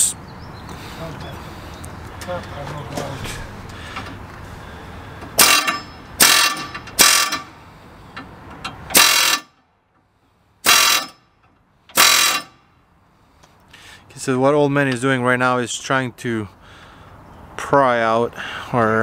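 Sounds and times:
air hammer bursts: 0:05.3 - 0:07.6, 0:08.9 - 0:09.5, 0:10.6 - 0:11.2, 0:11.9 - 0:12.6.

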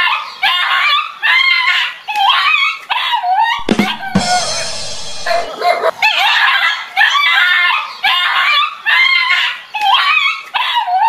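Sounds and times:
dog yelping: 0:05.2 - 0:07.5.

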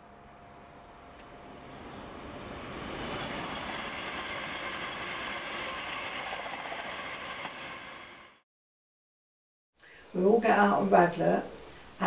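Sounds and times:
train passing: 0:00.0 - 0:08.4.

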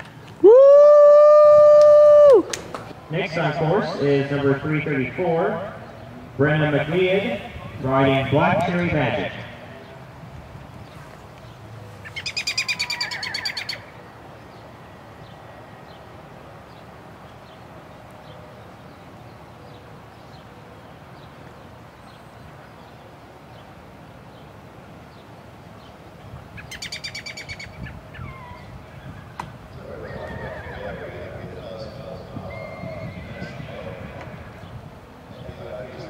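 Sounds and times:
birds chirping: 0:02.9 - 0:36.0
loud rapid bird trills: 0:12.0 - 0:16.1, 0:25.1 - 0:30.7.

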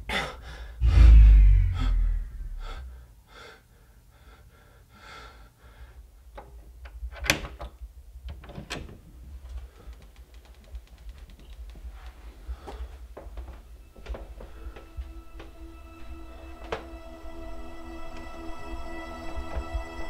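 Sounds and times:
heavy breathing: 0:00.0 - 0:06.2, 0:12.4 - 0:13.2
low rumble: 0:00.8 - 0:03.1
fast faint clicks: 0:09.5 - 0:12.4.

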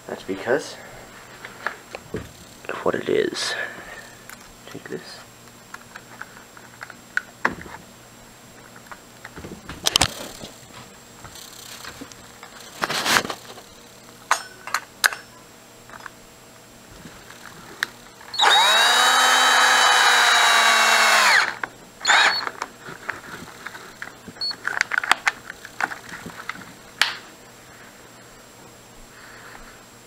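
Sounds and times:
power drill driving a screw: 0:18.3 - 0:22.5.

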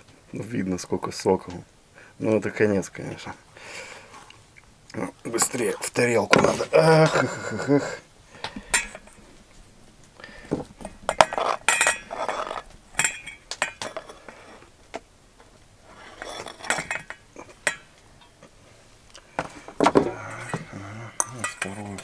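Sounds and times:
metal clinks: 0:08.6 - 0:09.2, 0:10.8 - 0:14.2, 0:20.2 - 0:22.0
knife scraping: 0:10.9 - 0:14.7, 0:15.9 - 0:17.8.

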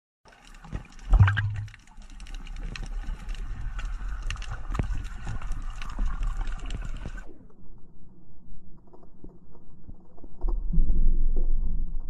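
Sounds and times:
air bubbles gurgling underwater: 0:00.3 - 0:07.3
crackle of small clicks: 0:00.3 - 0:12.0
low underwater rumble: 0:00.8 - 0:01.9, 0:02.6 - 0:12.0.

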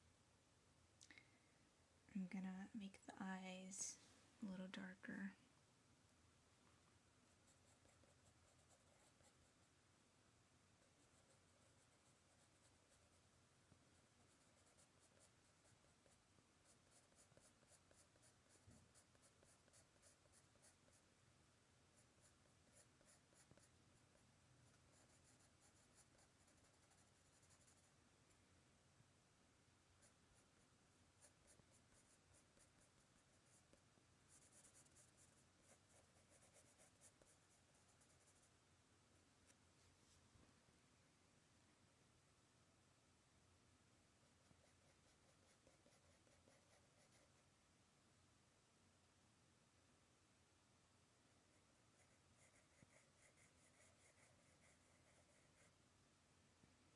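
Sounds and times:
pencil scratching on paper: 0:07.4 - 0:09.6, 0:10.8 - 0:13.2, 0:14.2 - 0:21.0, 0:22.0 - 0:27.9, 0:31.2 - 0:38.5, 0:44.3 - 0:47.4, 0:52.0 - 0:55.7.

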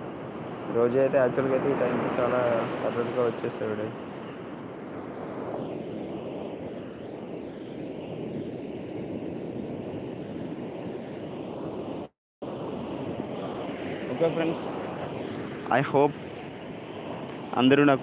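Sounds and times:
ocean surf breaking on sand: 0:00.0 - 0:04.2
wind on microphone: 0:00.0 - 0:18.0.

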